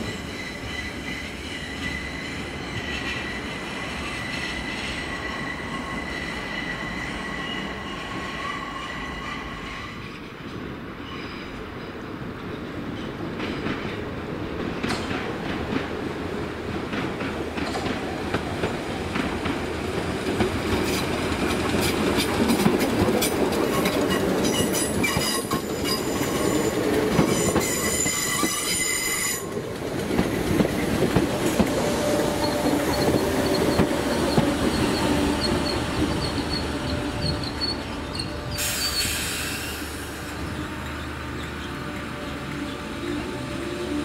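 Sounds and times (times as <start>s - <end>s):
train wheels rumbling: 0.0s - 44.0s
wheels clicking over rail joints: 16.7s - 38.7s
high wheel squeal: 23.8s - 29.5s, 31.4s - 42.3s.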